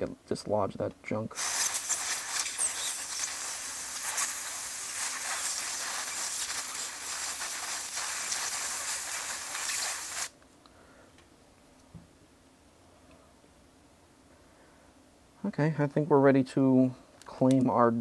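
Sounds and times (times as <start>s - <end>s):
compressed air hissing: 1.3s - 10.3s.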